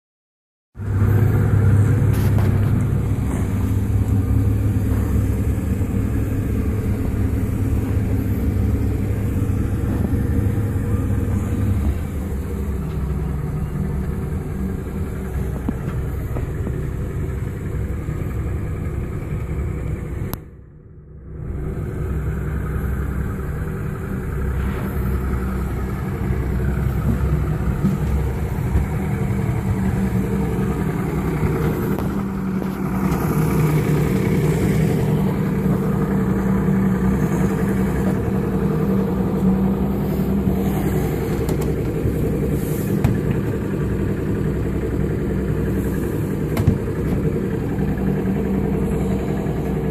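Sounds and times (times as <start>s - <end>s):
outboard motors droning: 0.8s - 49.9s.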